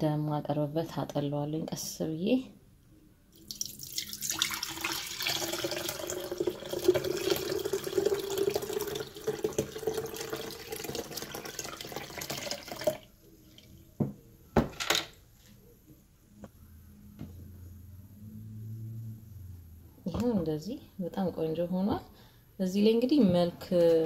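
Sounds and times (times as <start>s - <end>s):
liquid pouring into a jug: 3.4s - 13.7s.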